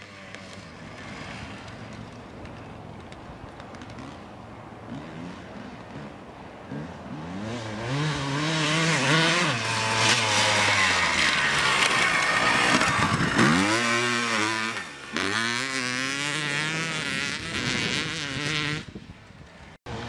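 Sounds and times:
motocross engine revving hard: 0:06.7 - 0:18.9.

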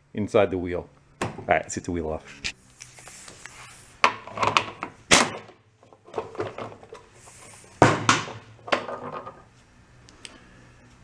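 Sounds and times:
tools and parts clattering: 0:04.0 - 0:09.5.

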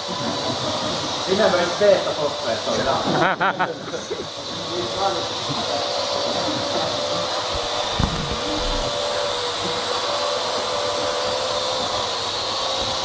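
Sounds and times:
drone propellers whirring: 0:05.8 - 0:13.0
short thump: 0:07.6 - 0:08.9.

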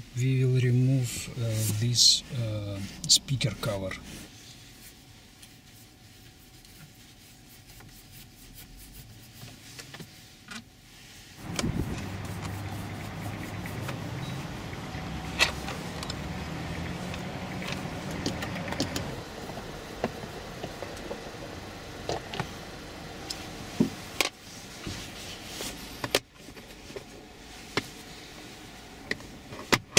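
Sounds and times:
steady low hum: 0:11.2 - 0:29.2.

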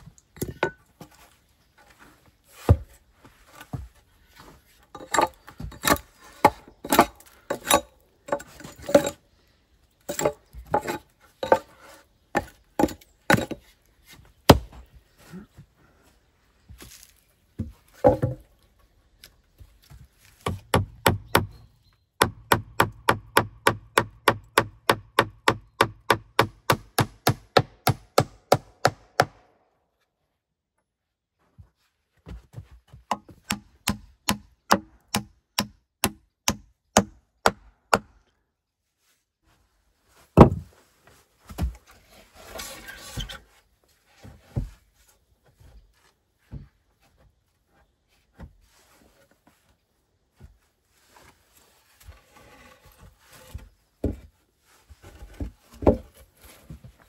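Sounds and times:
wooden logs knocking: 0:17.6 - 0:18.5, 0:40.4 - 0:40.7.

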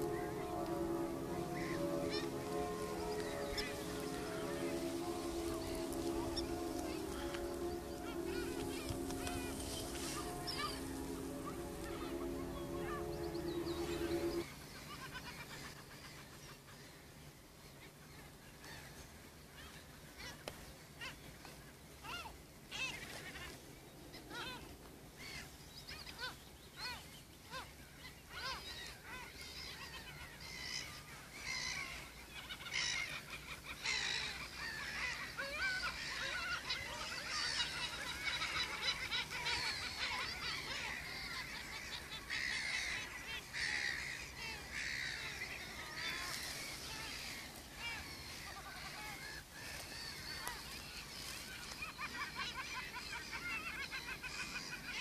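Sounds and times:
chorus of birds calling: 0:00.0 - 0:14.4, 0:28.3 - 0:55.0.

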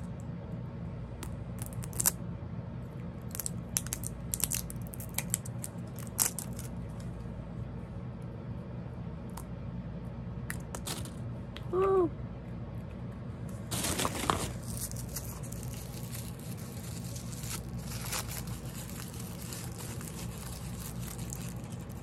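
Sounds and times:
steady low hum: 0:00.0 - 0:22.0
wrapper tearing: 0:01.6 - 0:02.2, 0:03.3 - 0:06.7, 0:13.7 - 0:22.0
packaging clicks and rustling: 0:13.7 - 0:22.0.

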